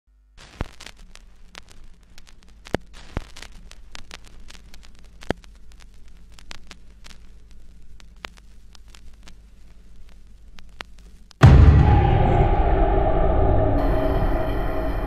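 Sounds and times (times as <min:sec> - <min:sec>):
static hiss: 0:00.1 - 0:11.4
pops and clicks: 0:02.2 - 0:07.2
low hum: 0:11.4 - 0:15.0.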